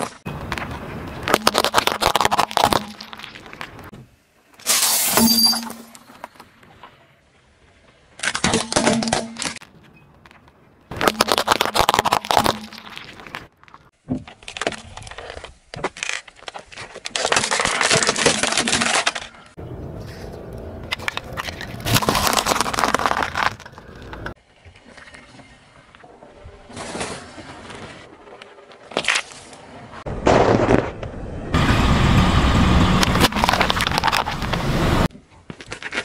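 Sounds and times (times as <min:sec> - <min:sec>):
tyre crushing objects: 0:10.9 - 0:19.2, 0:20.9 - 0:24.4.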